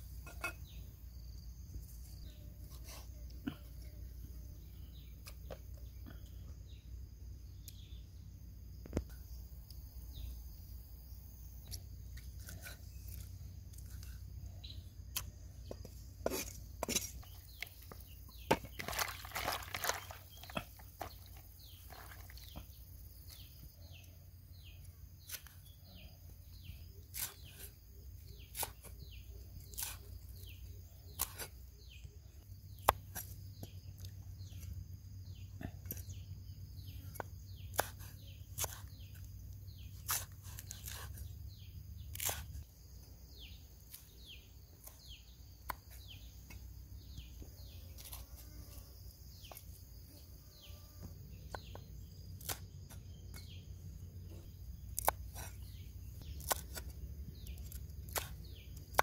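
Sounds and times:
high insect hum: 0.0 - 59.0.

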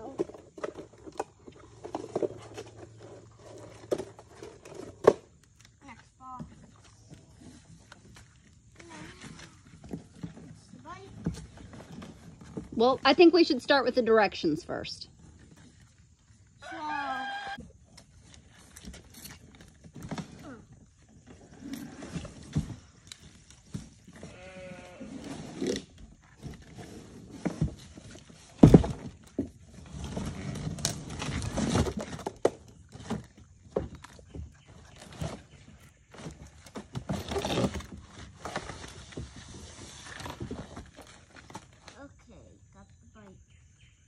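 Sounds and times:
cardboard rustling and scraping: 0.0 - 14.1, 18.0 - 42.1
short wavering cry: 16.6 - 17.6.

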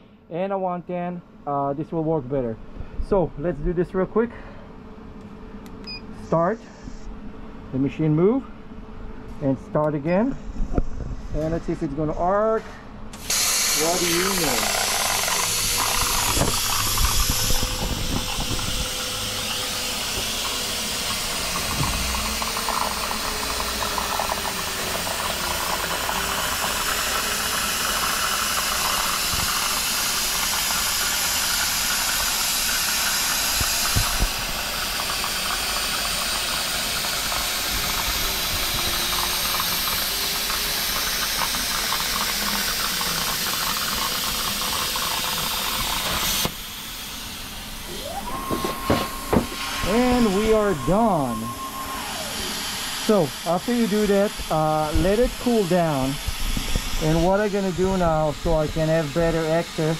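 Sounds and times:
plasma arc hiss: 13.2 - 24.2, 26.4 - 44.0, 44.6 - 59.9
faint tone rising and falling: 47.7 - 53.4.

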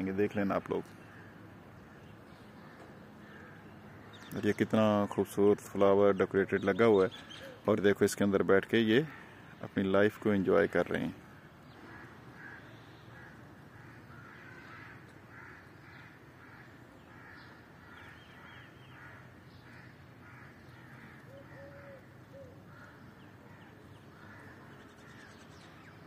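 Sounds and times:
crows cawing: 0.9 - 4.4, 8.9 - 9.7, 11.0 - 26.0.

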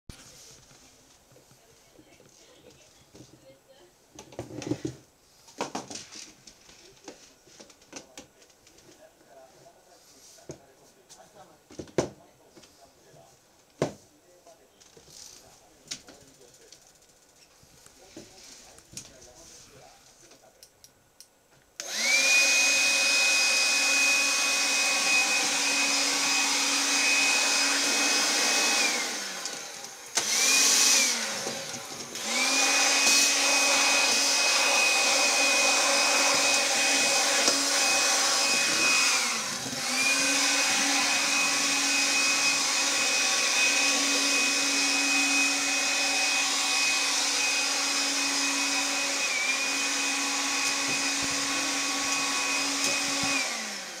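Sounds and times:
vacuum cleaner motor whine: 21.8 - 54.0.

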